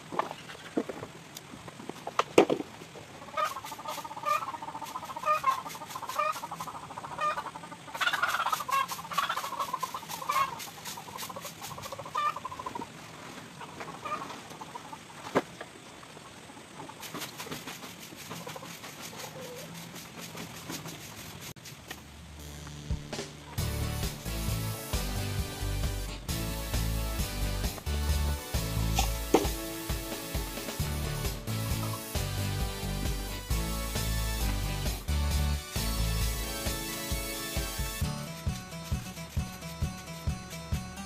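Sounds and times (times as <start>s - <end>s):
chickens clucking: 3.0s - 20.9s
broom sweeping dirt: 3.4s - 7.3s, 7.9s - 12.5s, 17.0s - 22.0s, 23.5s - 40.9s.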